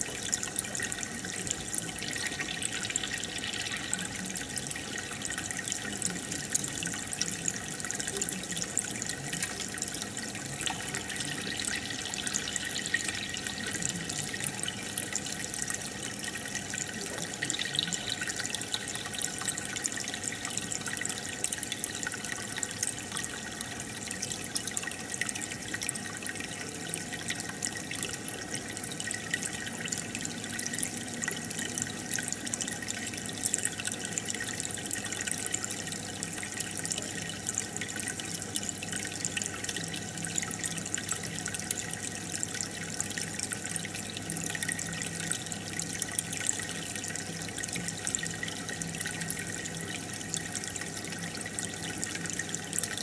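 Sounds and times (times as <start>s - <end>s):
aquarium air stone bubbling: 0.0s - 53.0s.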